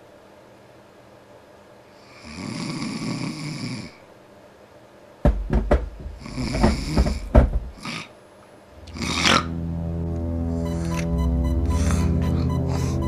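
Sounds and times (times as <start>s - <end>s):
man snoring: 2.0s - 4.0s, 8.9s - 9.6s.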